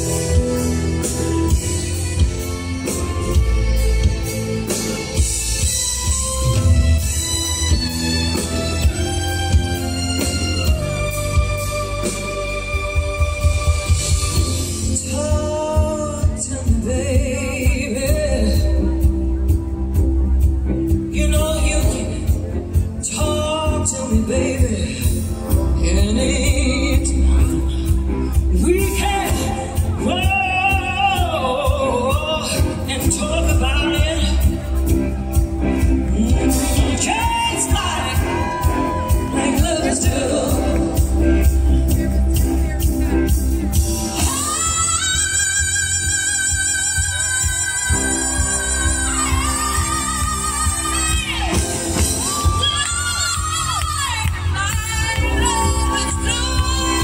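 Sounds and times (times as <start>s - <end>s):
live rock band: 0.0s - 57.0s
woman singing: 12.4s - 19.6s, 21.0s - 34.6s, 35.8s - 41.4s, 43.7s - 57.0s.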